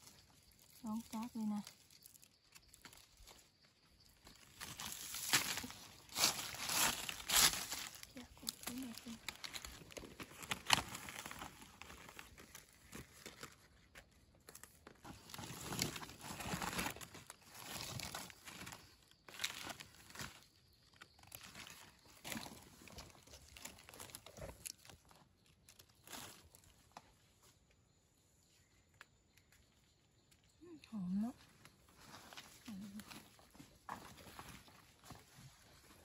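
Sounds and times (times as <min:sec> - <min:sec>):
dry leaves crackling and rustling: 0:00.1 - 0:03.5, 0:04.2 - 0:26.7.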